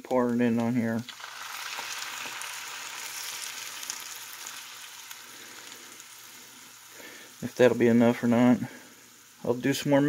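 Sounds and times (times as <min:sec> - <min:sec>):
broth sizzling in hot skillet: 0:00.2 - 0:10.0
liquid pouring into pan: 0:01.0 - 0:07.8.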